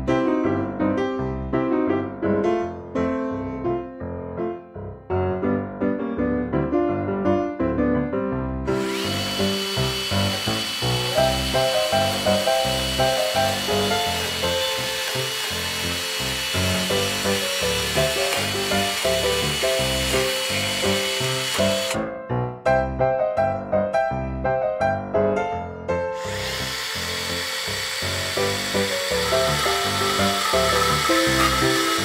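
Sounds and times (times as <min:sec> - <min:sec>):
piano music: 0:00.0 - 0:32.0
small chainsaw cutting wood: 0:08.7 - 0:22.0, 0:26.2 - 0:32.0.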